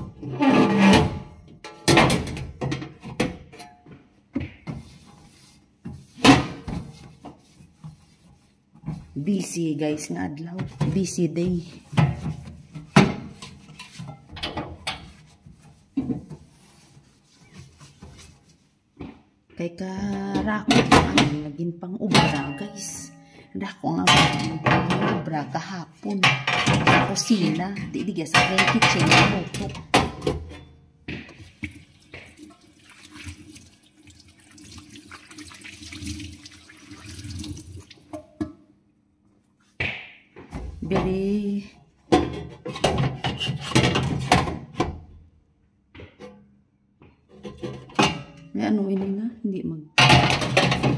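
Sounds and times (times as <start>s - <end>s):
water running into steel sink: 31.6s - 38.1s.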